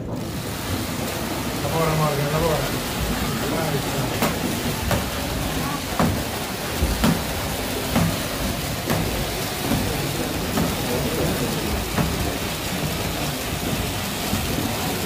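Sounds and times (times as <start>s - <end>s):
irregular knocks: 4.1s - 10.9s, 11.9s - 14.8s.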